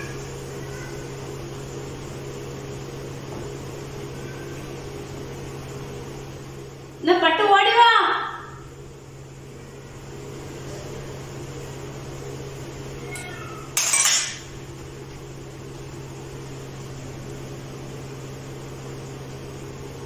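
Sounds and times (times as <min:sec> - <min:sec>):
steady low hum: 0:00.0 - 0:20.0
dishes clattering: 0:13.7 - 0:14.5
glass bowls and spoon handled: 0:13.8 - 0:14.4.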